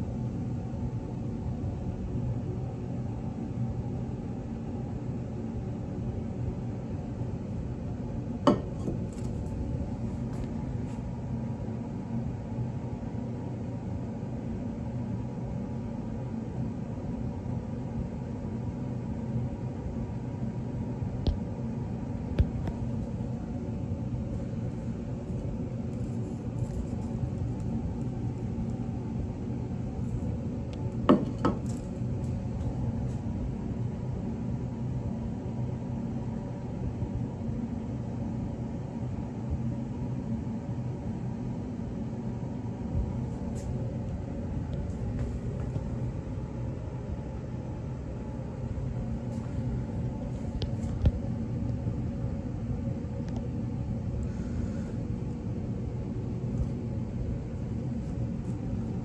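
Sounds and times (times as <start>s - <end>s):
low electrical hum: 0.0s - 59.0s
glass flask knocking on surface: 8.5s - 9.0s, 31.1s - 31.7s.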